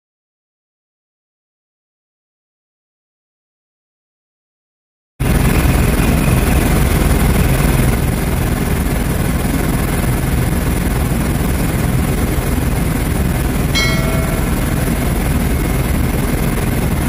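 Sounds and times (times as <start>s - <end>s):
helicopter cabin rotor and engine noise: 5.2s - 17.0s.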